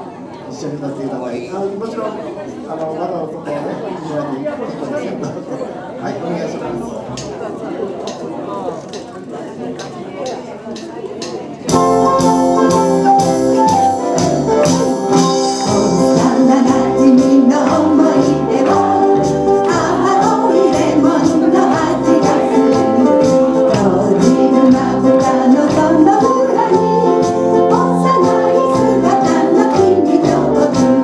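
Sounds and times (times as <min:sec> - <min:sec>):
live band playing upbeat song: 0:11.7 - 0:31.0
person singing melody: 0:11.7 - 0:31.0.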